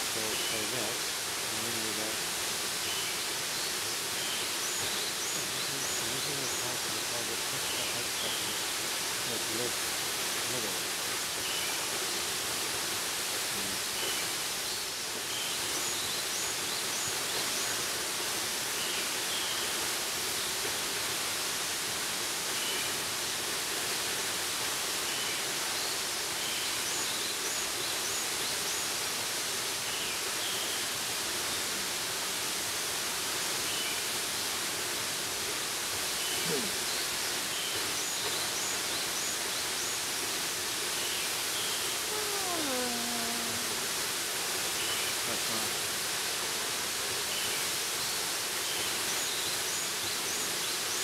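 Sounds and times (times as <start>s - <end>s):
waterfall rushing: 0.0s - 51.0s
faint bird chirps: 2.8s - 8.6s, 36.1s - 40.0s.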